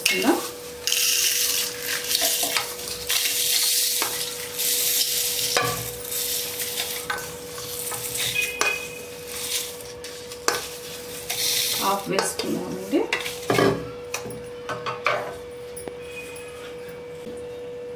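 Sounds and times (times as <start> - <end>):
spatula scraping on steel: 0.9 - 13.6.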